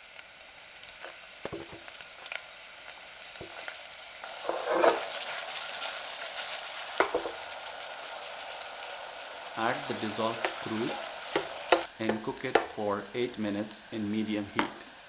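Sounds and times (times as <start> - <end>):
onion sizzling in hot oil: 0.0 - 15.0
knocks on pan: 7.0 - 7.4.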